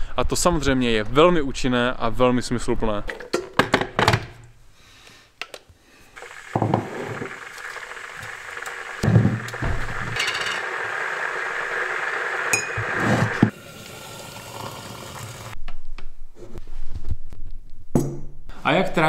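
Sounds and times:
electric kettle hissing: 6.1s - 15.6s.

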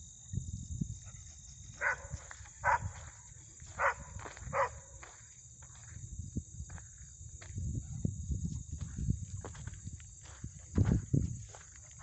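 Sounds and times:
dog barking: 1.0s - 3.0s, 3.8s - 5.0s.

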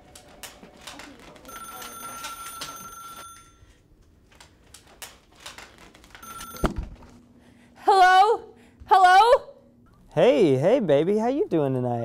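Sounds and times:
telephone ringing: 1.2s - 3.8s, 6.2s - 7.0s
small clicks and rustles: 4.0s - 6.6s.

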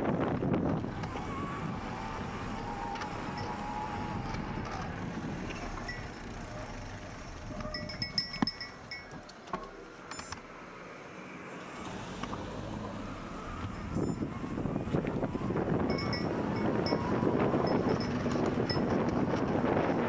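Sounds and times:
wind on microphone: 0.0s - 6.1s, 13.4s - 20.0s
small metal bell ringing: 7.7s - 9.1s, 15.9s - 19.0s.

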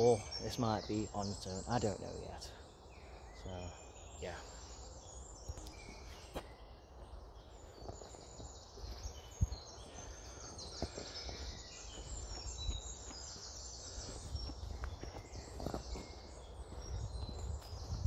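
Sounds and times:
birds chirping and trilling: 0.0s - 18.0s.

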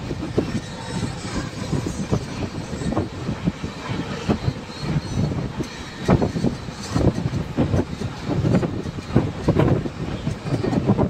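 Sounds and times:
train knocks and rattles: 0.0s - 11.0s
train wheels rumbling on rails: 0.0s - 11.0s.

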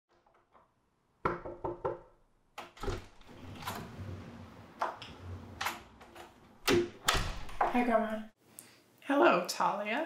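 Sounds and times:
knocks on a door: 1.2s - 2.1s
door latch and handle clicking: 4.8s - 7.8s.

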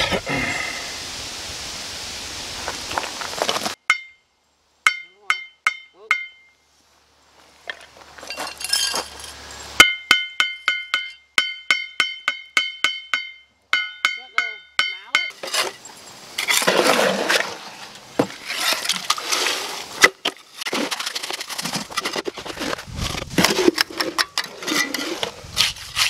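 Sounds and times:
trowel tapping concrete blocks: 9.8s - 15.4s
trowel scraping mortar: 15.3s - 26.0s.

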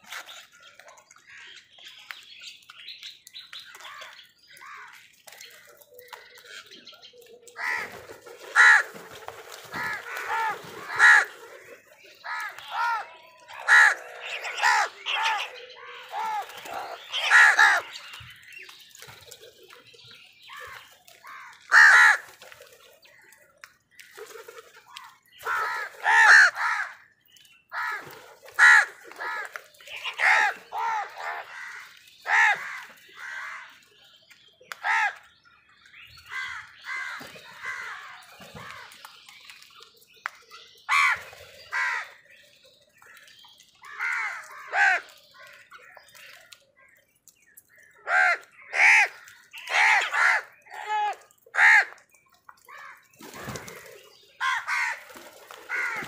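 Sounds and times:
crows cawing: 7.6s - 7.9s, 8.5s - 8.9s, 9.7s - 11.4s, 12.2s - 17.9s, 21.2s - 22.3s, 25.4s - 27.0s, 27.7s - 28.0s, 28.6s - 33.8s, 34.8s - 35.2s, 36.3s - 38.9s, 40.9s - 42.2s, 43.8s - 45.7s, 48.0s - 52.0s, 54.4s - 55.1s, 55.7s - 56.0s.

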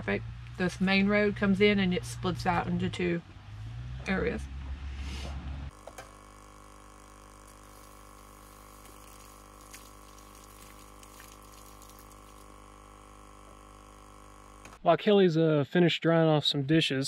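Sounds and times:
steady hum: 5.7s - 14.8s
running water: 7.4s - 12.7s.

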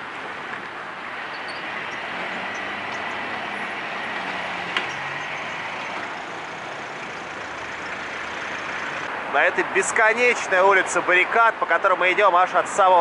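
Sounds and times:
vehicle passing close: 1.0s - 9.1s.

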